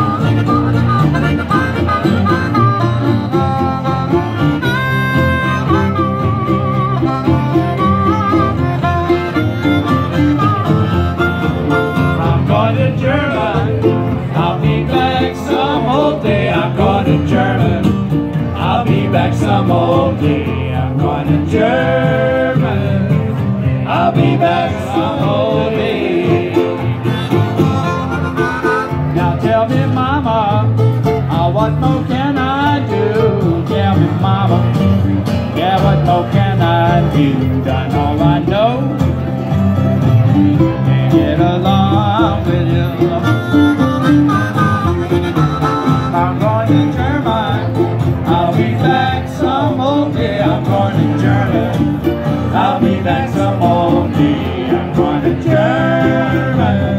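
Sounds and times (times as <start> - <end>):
harmonica: 0.0 - 31.0, 39.2 - 56.9
acoustic guitars: 0.0 - 56.9
upright bass: 0.0 - 56.9
man singing into microphone: 12.0 - 26.9, 29.0 - 39.0, 40.8 - 43.6, 45.8 - 51.9, 52.5 - 56.9.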